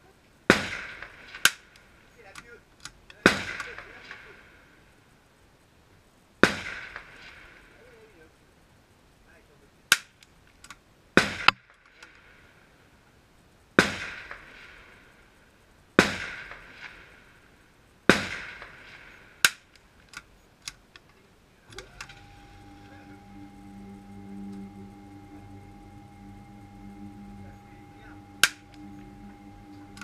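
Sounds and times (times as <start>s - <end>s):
rifle shots with echo: 16.0s - 17.0s, 18.1s - 19.1s
music: 21.7s - 30.0s.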